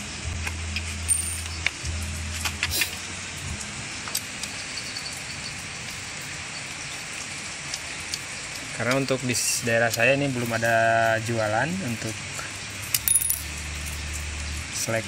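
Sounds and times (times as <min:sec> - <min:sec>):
low hum: 0:00.0 - 0:07.9.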